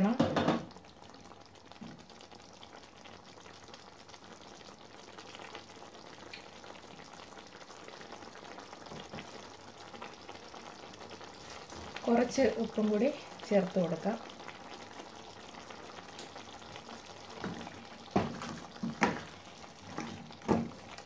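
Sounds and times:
curry sizzling in a pan: 0:00.0 - 0:21.0.

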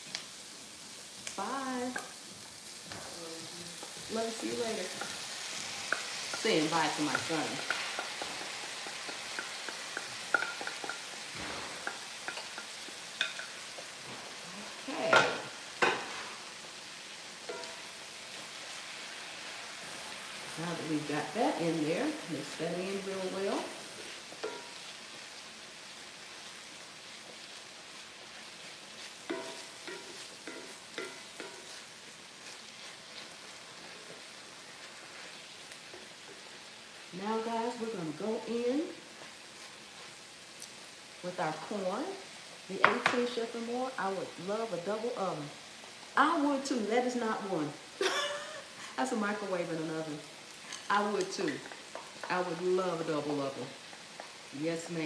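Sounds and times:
meat sizzling in a skillet: 0:00.0 - 0:55.0
spatula scraping a pan: 0:27.2 - 0:36.7.

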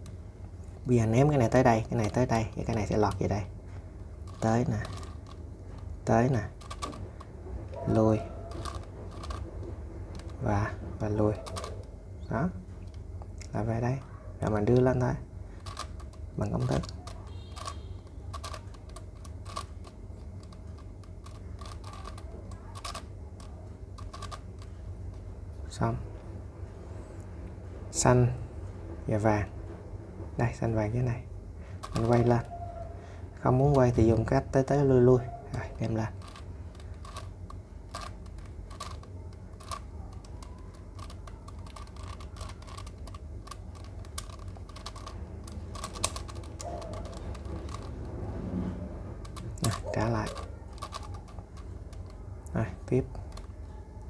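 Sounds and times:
low steady hum: 0:00.0 - 0:54.0
plastic puzzle cube clicking: 0:04.2 - 0:07.3, 0:08.5 - 0:10.4, 0:11.4 - 0:11.9, 0:15.6 - 0:24.8, 0:31.8 - 0:32.5, 0:35.5 - 0:48.2, 0:49.2 - 0:53.6.

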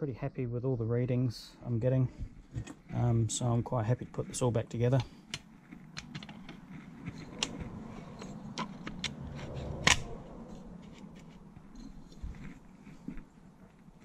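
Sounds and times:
metal parts clicking and scraping: 0:04.9 - 0:12.2.

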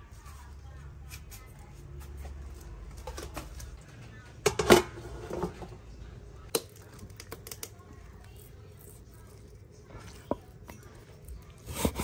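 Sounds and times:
cookware clattering: 0:04.4 - 0:05.7.

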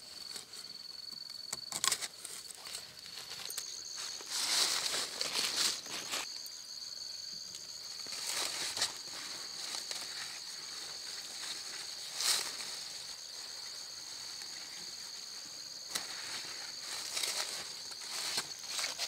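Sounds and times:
insects chirring: 0:00.0 - 0:19.0
rustling: 0:01.8 - 0:06.3, 0:07.9 - 0:19.0.

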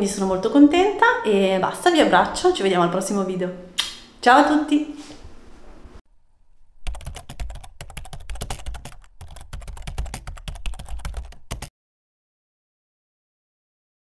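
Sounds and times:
keyboard typing clicks: 0:06.9 - 0:11.7.

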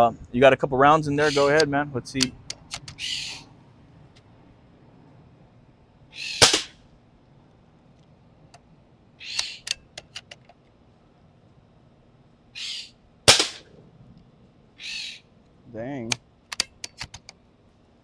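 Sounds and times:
bird calling: 0:01.0 - 0:03.6, 0:06.0 - 0:06.8, 0:09.1 - 0:10.0, 0:12.5 - 0:13.8, 0:14.7 - 0:15.4
rifle bolt clicks: 0:01.6 - 0:03.0, 0:16.1 - 0:17.4
air rifle shots: 0:06.4 - 0:06.8, 0:13.3 - 0:13.7.

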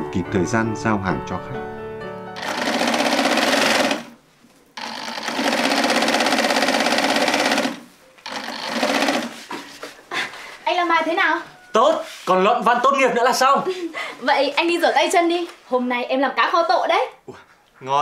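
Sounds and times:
sewing machine stitching: 0:02.4 - 0:04.2, 0:04.8 - 0:09.6.

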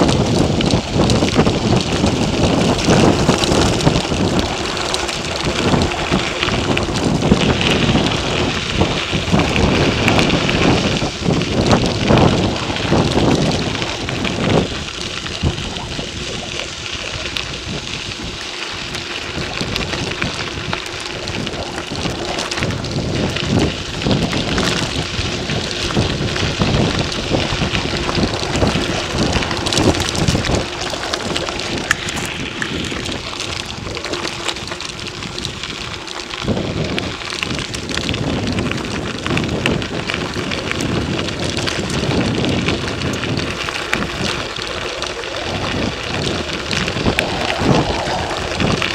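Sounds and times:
bike tyres crackling on gravel: 0:00.0 - 0:48.9
wind noise on microphone: 0:00.0 - 0:48.9.

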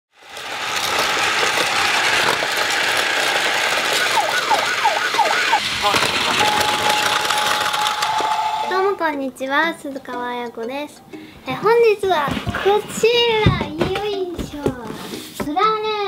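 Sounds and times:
toy train whirring on track: 0:00.1 - 0:09.0
toy electronic sound effects: 0:00.4 - 0:09.0
steady electronic tone: 0:04.0 - 0:09.0
recorded voice: 0:08.6 - 0:16.0.

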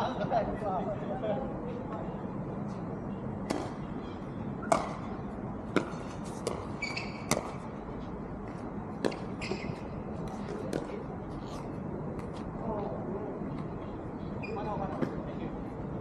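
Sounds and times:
paddles striking pickleball: 0:04.6 - 0:05.1, 0:05.8 - 0:07.6.

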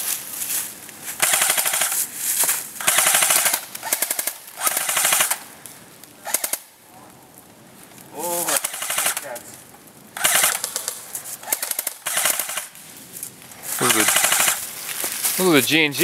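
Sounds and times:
airsoft rifle bursts: 0:01.2 - 0:02.0, 0:02.8 - 0:05.4, 0:06.2 - 0:06.7, 0:08.5 - 0:09.4, 0:10.2 - 0:12.7, 0:13.8 - 0:14.7.

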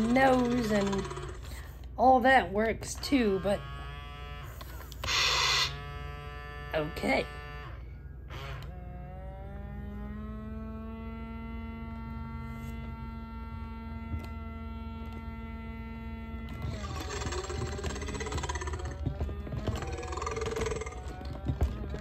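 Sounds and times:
rough wavering motor sound: 0:00.0 - 0:01.6, 0:03.0 - 0:22.0
toy motor whirring: 0:00.0 - 0:01.7, 0:02.8 - 0:08.8, 0:12.4 - 0:22.0.

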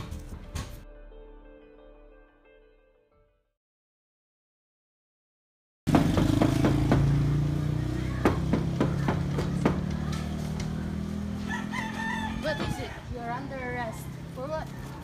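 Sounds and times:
engine droning: 0:05.9 - 0:12.5.

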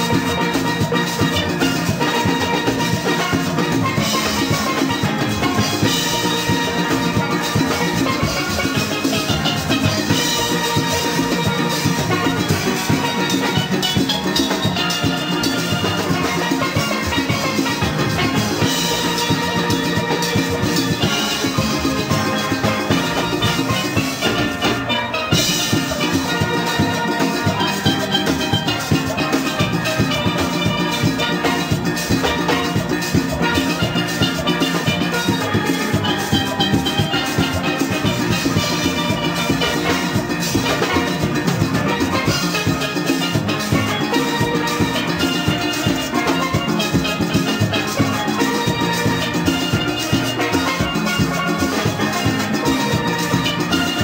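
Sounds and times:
music with percussive beat: 0:00.0 - 0:54.0.

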